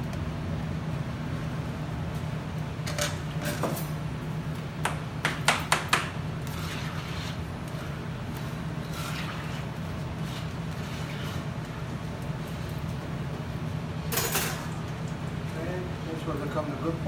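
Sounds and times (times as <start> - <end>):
steady low hum: 0.0 - 17.0
metal spatula scraping tray: 6.4 - 8.0, 8.8 - 11.5.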